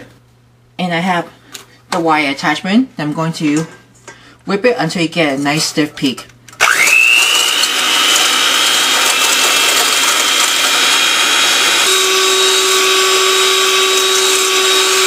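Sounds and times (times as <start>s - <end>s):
electric mixer whisking: 6.6s - 15.0s.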